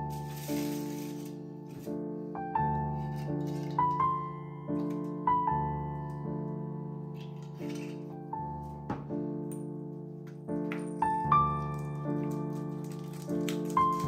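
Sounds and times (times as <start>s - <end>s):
slow piano chords: 0.0s - 14.0s.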